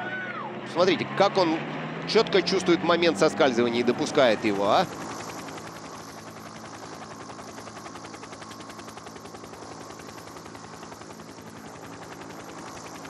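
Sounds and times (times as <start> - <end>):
engine hum: 0.0 - 13.0
helicopter rotor chopping: 0.5 - 13.0.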